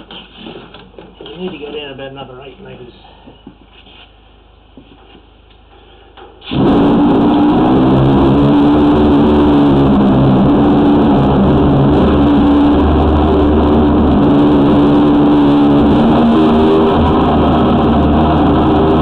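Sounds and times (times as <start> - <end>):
drain jetter engine drone: 6.5 - 19.0.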